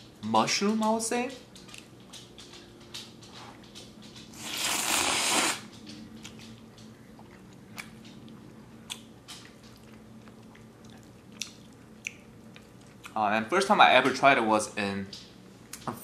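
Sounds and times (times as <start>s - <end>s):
chewing with clicks and smacks: 0.8s - 4.6s, 5.7s - 13.2s
loud noodle slurp: 4.4s - 5.6s.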